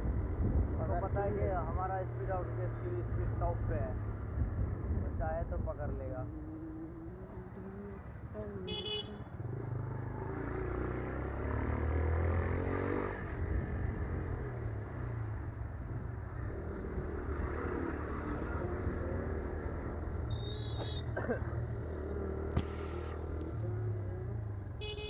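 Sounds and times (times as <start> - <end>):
short horn beep: 20.3 - 21.1.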